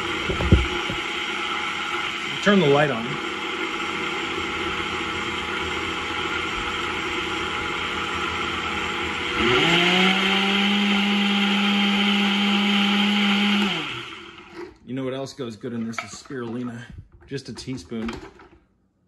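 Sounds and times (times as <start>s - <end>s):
blender motor whining: 0.0s - 14.8s.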